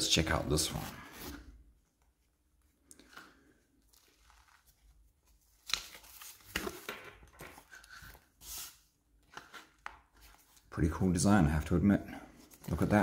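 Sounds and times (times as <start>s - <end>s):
wallet rustling: 0.7s - 10.7s.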